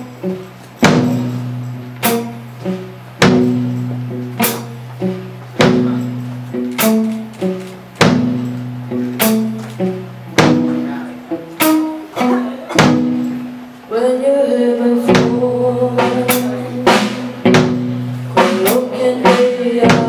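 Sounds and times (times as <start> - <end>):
guitar notes: 0.0 - 20.0
sharp drum hits: 0.8 - 2.3, 3.2 - 4.8, 5.6 - 7.0, 8.0 - 8.6, 10.3 - 11.0, 11.6 - 13.5, 16.1 - 18.8.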